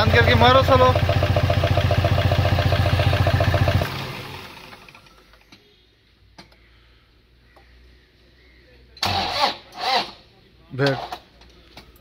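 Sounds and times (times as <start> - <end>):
diesel engine cranking: 0.0 - 5.5, 9.0 - 10.2.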